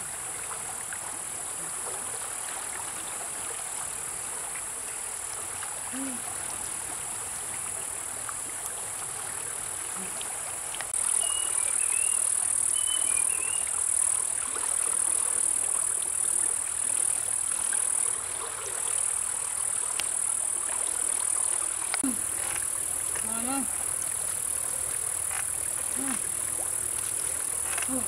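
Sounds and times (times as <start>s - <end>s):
stream rushing over rocks: 0.0s - 28.0s
high-pitched insect drone: 11.0s - 18.2s
short bird chirps: 11.1s - 13.7s.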